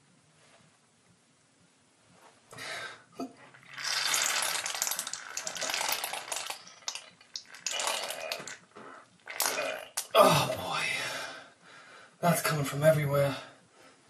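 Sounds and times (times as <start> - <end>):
air sputtering from wound: 3.5 - 10.2.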